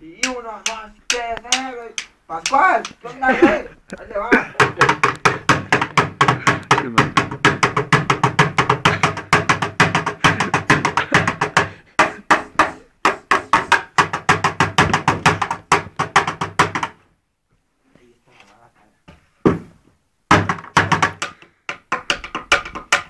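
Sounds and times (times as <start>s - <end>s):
drumsticks beating plastic bucket: 0.2s - 3.0s, 4.6s - 17.0s, 20.3s - 23.0s.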